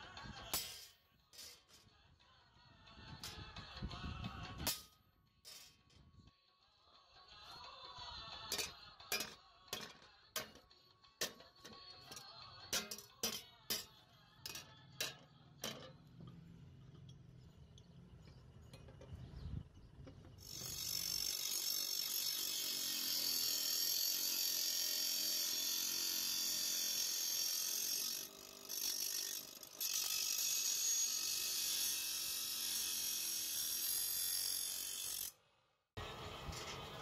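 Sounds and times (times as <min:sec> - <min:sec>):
grinding wheel grinding steel: 0:07.6 - 0:35.4, 0:36.0 - 0:37.0.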